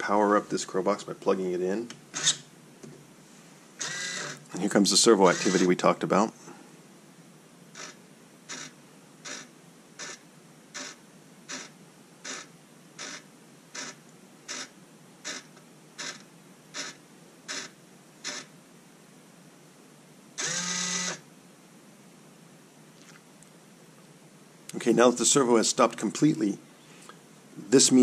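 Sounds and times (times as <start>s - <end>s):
servo motor buzzing: 2.2s - 2.4s, 3.8s - 4.5s, 5.2s - 5.7s, 16.8s - 18.5s, 20.4s - 21.2s.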